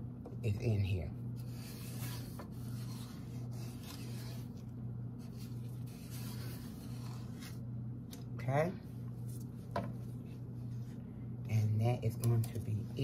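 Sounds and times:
spatula scraping mixing bowl: 0:01.4 - 0:04.6, 0:05.2 - 0:07.6.

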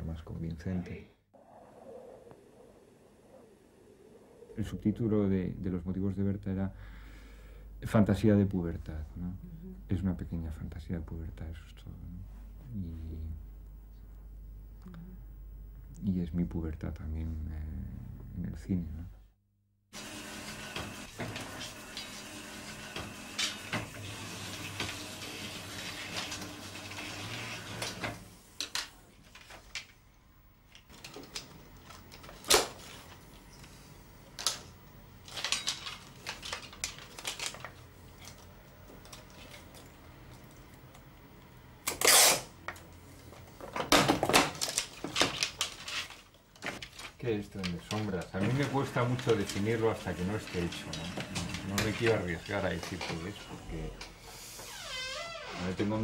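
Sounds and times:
film editing table humming: 0:20.0 - 0:28.8, 0:47.6 - 0:54.3.

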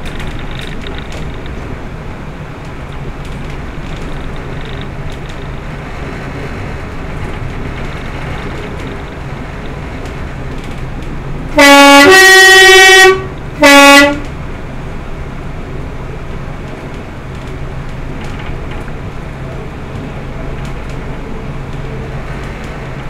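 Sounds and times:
train running rumble: 0:00.0 - 0:23.0
two-tone train horn: 0:11.5 - 0:14.4.

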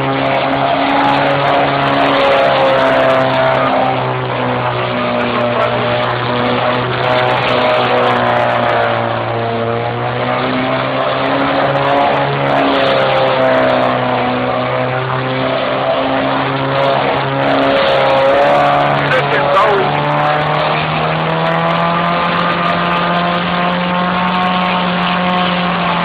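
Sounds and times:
car engine revving: 0:00.2 - 0:26.0.

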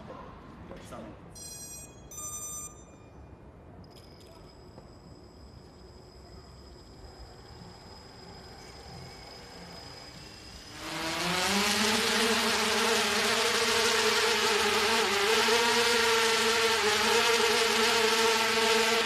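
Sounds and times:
drone propellers buzzing: 0:07.4 - 0:19.0.

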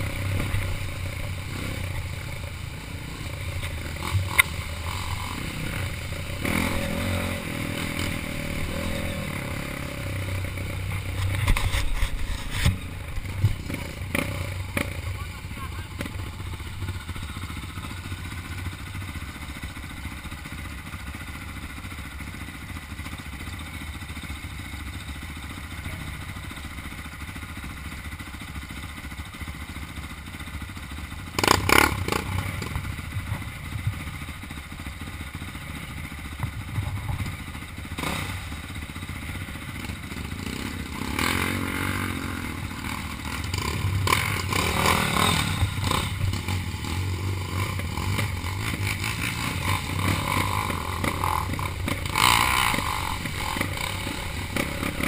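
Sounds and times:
dirt bike engines revving: 0:00.0 - 0:23.1, 0:30.2 - 0:55.0
dirt bike engines idling: 0:00.0 - 0:55.0.

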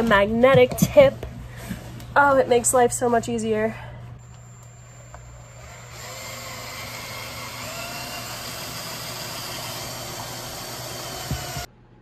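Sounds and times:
impact driver driving screw: 0:04.6 - 0:11.7.

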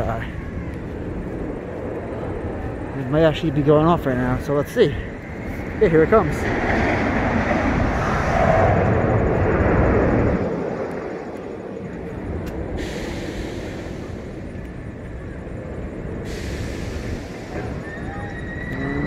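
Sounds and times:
roller coaster launch roar: 0:05.9 - 0:11.2, 0:12.6 - 0:19.0.

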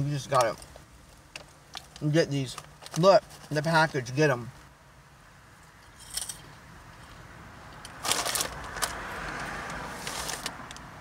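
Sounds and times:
crunching of snack sticks: 0:07.9 - 0:10.7
foil bag crackling: 0:08.0 - 0:08.9, 0:10.0 - 0:10.6.

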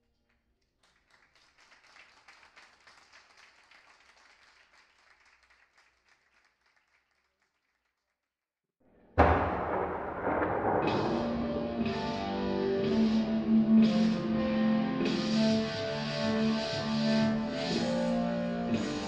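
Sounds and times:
small audience applauding: 0:00.6 - 0:08.2.

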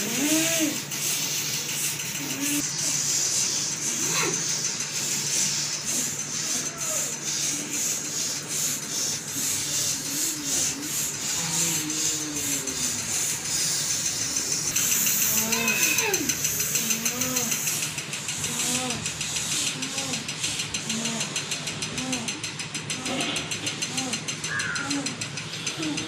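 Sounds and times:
wavering moans and cries: 0:09.8 - 0:13.5, 0:15.2 - 0:17.6.

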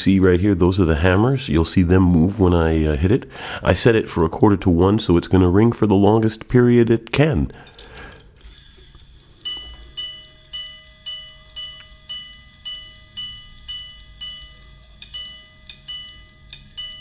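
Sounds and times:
faint whir of watch mechanism: 0:07.8 - 0:17.0
pocket watch chiming on gongs: 0:09.4 - 0:17.0.

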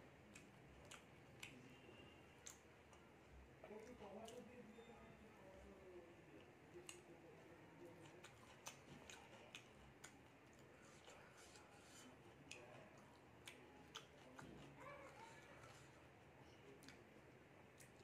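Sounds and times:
chewing mouth sounds: 0:00.2 - 0:01.8, 0:07.9 - 0:16.0.

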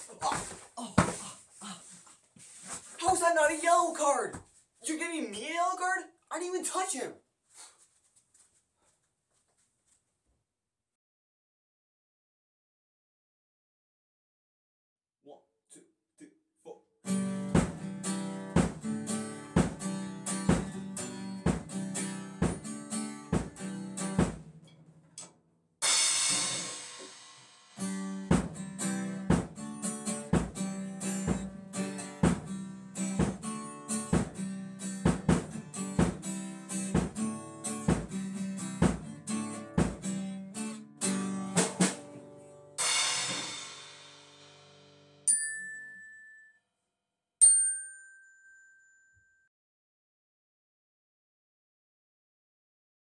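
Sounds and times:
acoustic guitar strumming: 0:17.1 - 0:24.8, 0:27.8 - 0:44.1
drum hits: 0:17.6 - 0:17.8, 0:18.6 - 0:18.8, 0:19.6 - 0:19.9, 0:20.5 - 0:20.8, 0:21.5 - 0:21.8, 0:22.4 - 0:22.7, 0:23.3 - 0:24.6, 0:25.8 - 0:29.6, 0:30.3 - 0:30.7, 0:31.3 - 0:31.5, 0:32.2 - 0:32.6, 0:33.2 - 0:33.5, 0:34.1 - 0:34.4, 0:35.0 - 0:36.3, 0:37.0 - 0:37.2, 0:37.8 - 0:38.2, 0:38.8 - 0:39.1, 0:39.7 - 0:40.1, 0:42.8 - 0:44.4.

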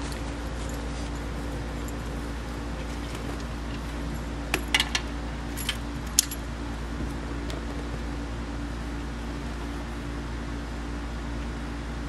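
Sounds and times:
low mechanical hum: 0:00.0 - 0:12.0
metallic key ring jingles: 0:05.5 - 0:06.4.

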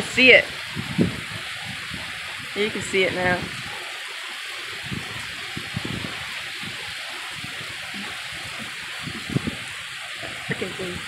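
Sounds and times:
heavy rain falling: 0:00.0 - 0:11.0
soft thumps: 0:07.9 - 0:09.6.

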